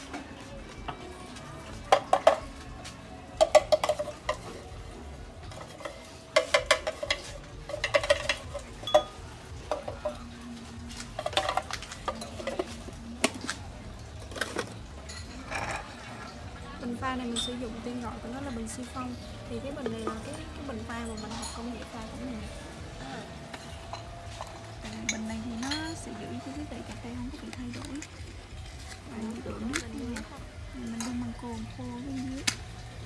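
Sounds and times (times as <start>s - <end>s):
spoon clinking against glass: 5.8s - 10.3s.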